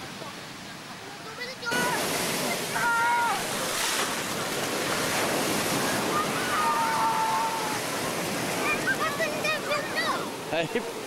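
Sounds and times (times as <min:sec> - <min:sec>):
ocean surf breaking: 0:01.2 - 0:11.0.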